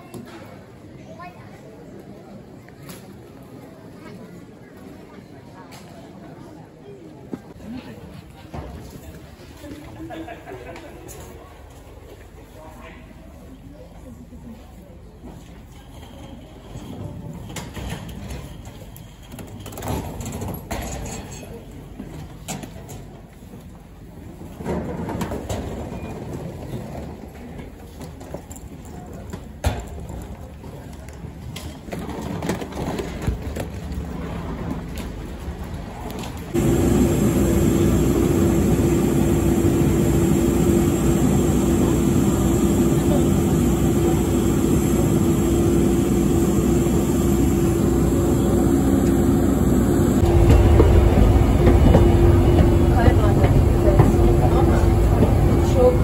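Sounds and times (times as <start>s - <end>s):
rolling suitcases: 15.2s - 56.0s
airliner droning: 36.5s - 56.0s
low rumble: 36.6s - 56.0s.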